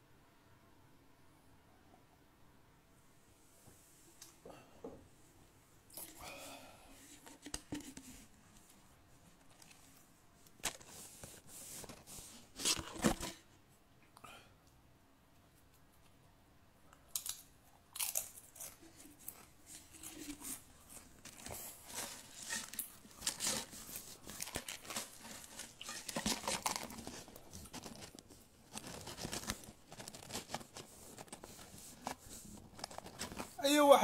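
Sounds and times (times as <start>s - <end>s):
chewing crunchy food: 17.0s - 31.3s.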